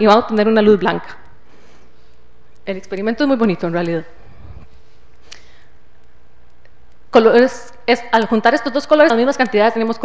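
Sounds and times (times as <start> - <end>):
low hum: 1.2 - 7.1.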